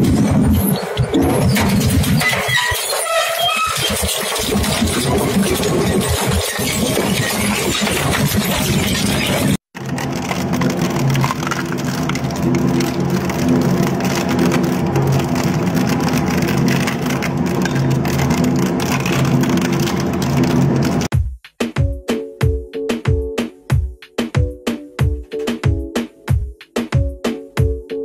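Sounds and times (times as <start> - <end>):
shredder crushing plastic: 0.0 - 21.1.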